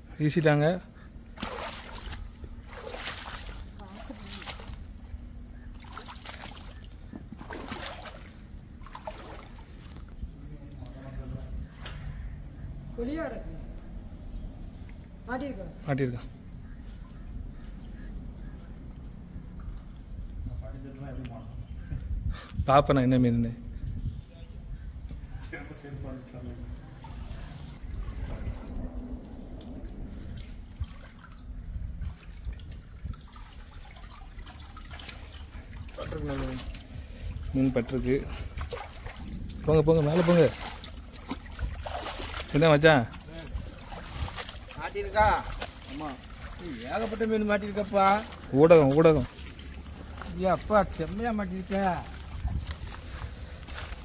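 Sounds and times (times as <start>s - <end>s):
water splashing and dripping: 0.2s - 10.3s, 16.0s - 20.4s, 26.6s - 54.0s.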